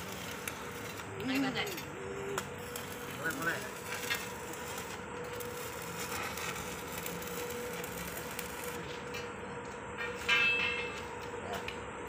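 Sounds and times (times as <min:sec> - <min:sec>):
welding arc crackling: 0:00.0 - 0:09.2.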